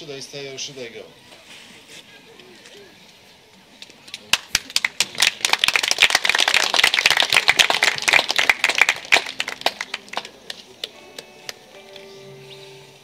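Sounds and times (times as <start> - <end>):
audience applauding: 4.2 - 11.6.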